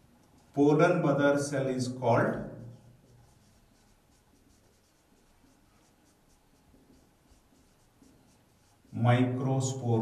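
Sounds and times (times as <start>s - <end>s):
marker pen squeaking on whiteboard: 2.6s - 9.1s.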